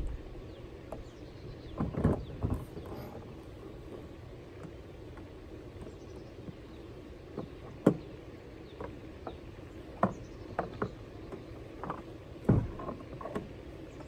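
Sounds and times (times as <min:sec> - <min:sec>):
gear knocking in plastic kayak: 0:00.0 - 0:14.0.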